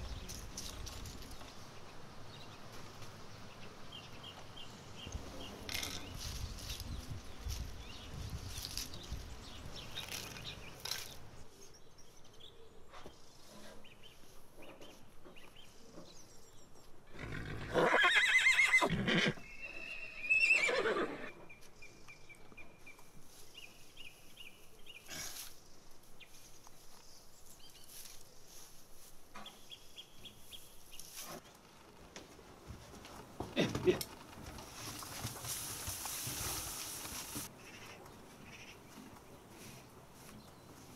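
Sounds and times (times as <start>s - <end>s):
horse whinnying: 17.1s - 21.4s.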